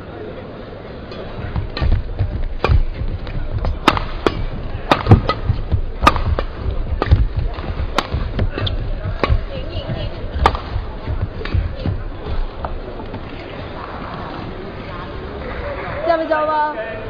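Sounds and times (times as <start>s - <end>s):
rackets striking shuttlecock: 1.1s - 12.8s
footsteps thudding on court: 1.4s - 13.2s.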